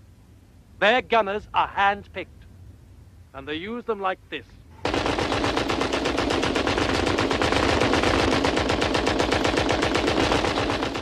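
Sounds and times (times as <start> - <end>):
heavy machine guns rapid fire: 4.8 - 11.0.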